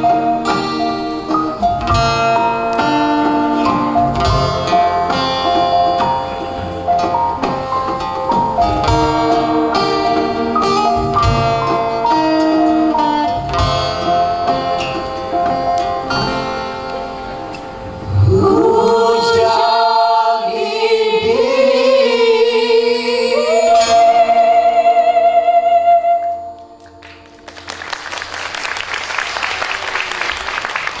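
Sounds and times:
plucked strings: 0:00.0 - 0:19.4
group of voices singing: 0:18.0 - 0:26.3
audience applause: 0:26.9 - 0:31.0.

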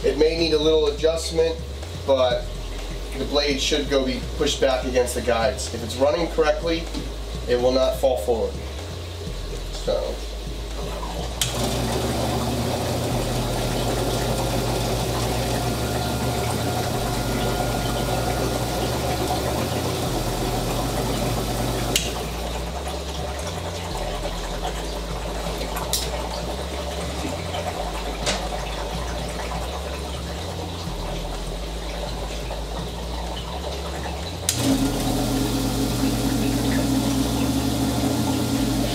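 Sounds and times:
water splashing: 0:10.8 - 0:38.9
wet band saw whirring: 0:11.4 - 0:22.8, 0:34.5 - 0:38.9.

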